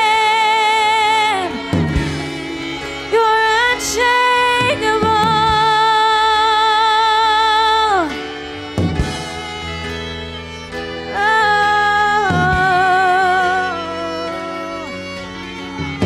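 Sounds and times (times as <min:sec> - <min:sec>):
woman singing with vibrato: 0:00.0 - 0:08.5, 0:10.9 - 0:15.0
electric guitar: 0:00.0 - 0:16.0
keyboard: 0:00.0 - 0:16.0.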